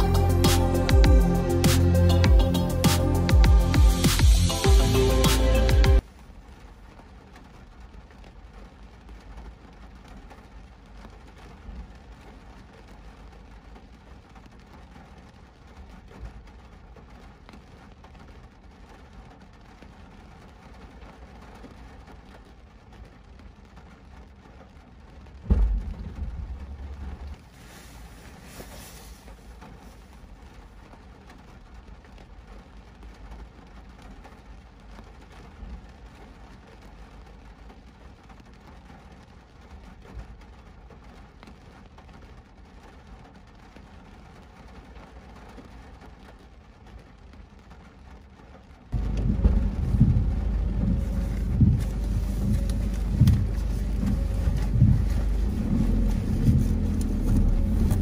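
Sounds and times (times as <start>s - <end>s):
car rumble in rain: 0.0s - 58.0s
loud low thump: 25.4s - 27.4s, 49.0s - 58.0s.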